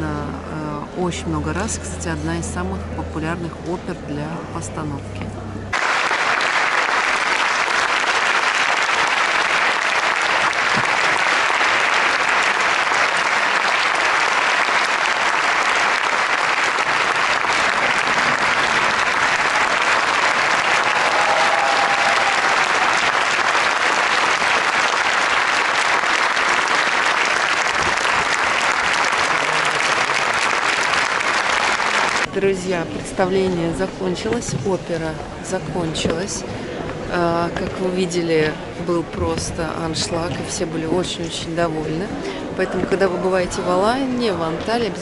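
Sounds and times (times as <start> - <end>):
audience applauding: 5.7 - 32.3.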